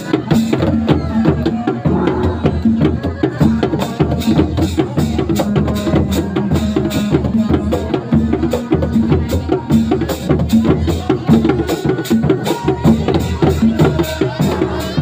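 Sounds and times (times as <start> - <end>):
hand drums fast rhythm: 0.0 - 15.0
low drum boom: 0.5 - 11.6.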